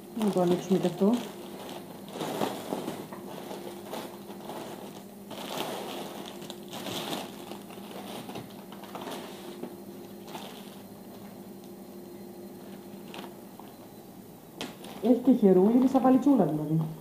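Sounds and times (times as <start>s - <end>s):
packaging crinkling and rustling: 0.0s - 11.4s, 12.6s - 13.9s, 14.6s - 15.3s.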